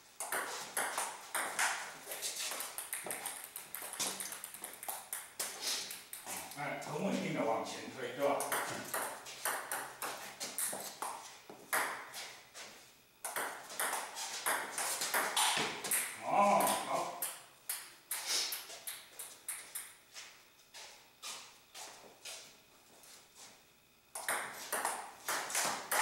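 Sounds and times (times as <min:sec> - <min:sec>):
table tennis ball clicking: 0:02.6 - 0:06.3, 0:08.4 - 0:10.0, 0:13.2 - 0:14.6.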